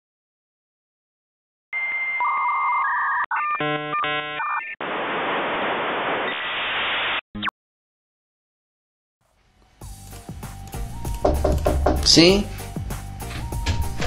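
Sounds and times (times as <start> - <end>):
modem hiss: 4.8 - 7.2.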